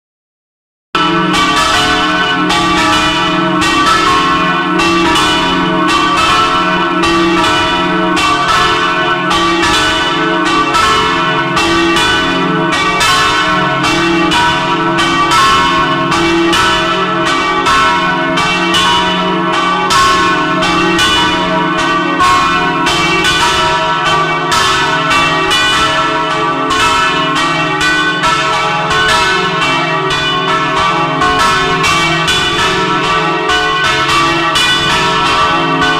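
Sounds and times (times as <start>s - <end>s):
church bells ringing: 1.0s - 35.9s.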